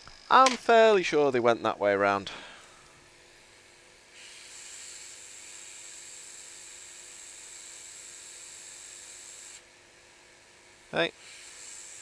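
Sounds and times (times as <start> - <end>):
hot air tool hissing and whistling: 4.1 - 9.6, 11.0 - 12.0.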